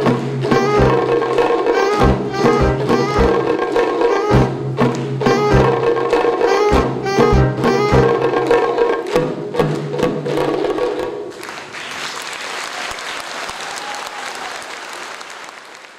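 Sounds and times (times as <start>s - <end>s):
audience applause: 0.0s - 9.8s, 11.3s - 15.9s
drum strokes: 0.0s - 11.3s
held saxophone note: 0.5s - 4.6s, 5.2s - 8.5s.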